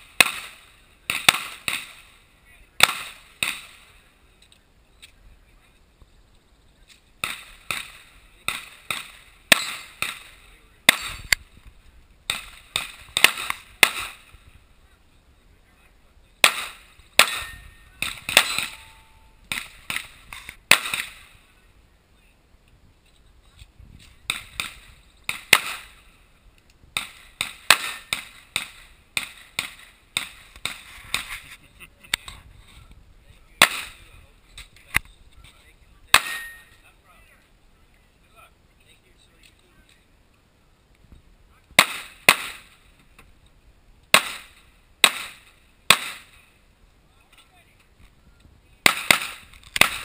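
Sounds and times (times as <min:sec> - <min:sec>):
handgun shots: 0:00.2 - 0:02.0, 0:07.2 - 0:10.3, 0:16.4 - 0:18.9, 0:27.0 - 0:31.3, 0:48.8 - 0:50.0.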